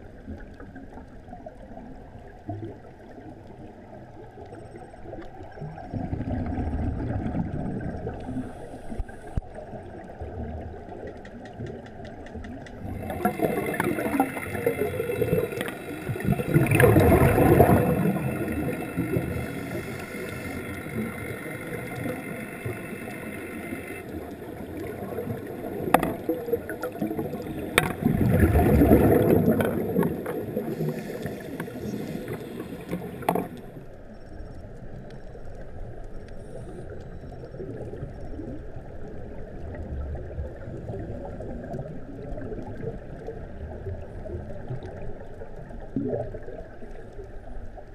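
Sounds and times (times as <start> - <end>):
exhaled bubbles rumbling: 0.0 - 33.8, 35.7 - 47.9
underwater motor whine: 12.8 - 47.6
diver breathing through regulator: 12.9 - 24.1, 27.3 - 33.7.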